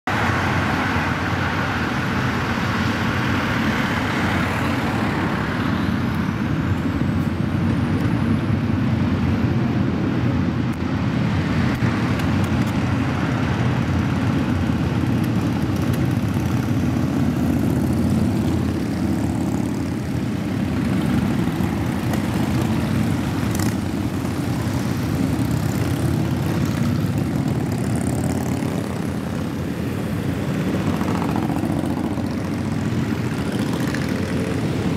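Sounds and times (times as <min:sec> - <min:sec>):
motorcycles rumbling past: 0:11.3 - 0:34.9.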